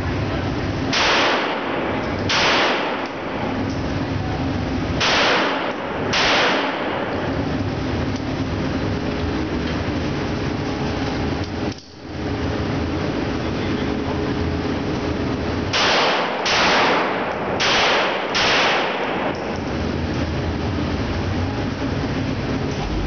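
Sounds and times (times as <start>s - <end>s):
steady background noise: 0.0s - 23.0s
handgun shots echoing: 0.9s - 3.4s, 5.0s - 7.2s, 15.7s - 19.5s.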